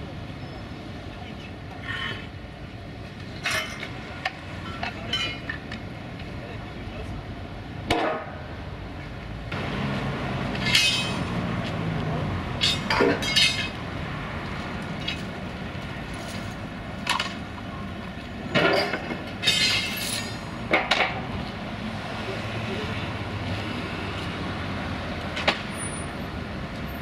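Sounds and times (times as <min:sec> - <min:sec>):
steel parts clanking: 0:10.6 - 0:11.3, 0:12.6 - 0:13.8, 0:18.5 - 0:20.5.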